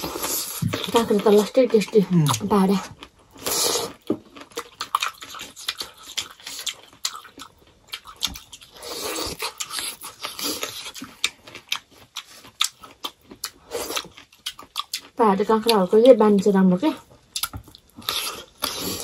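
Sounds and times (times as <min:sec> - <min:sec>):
chewing crisp cucumber: 0:00.0 - 0:16.5, 0:17.2 - 0:19.0.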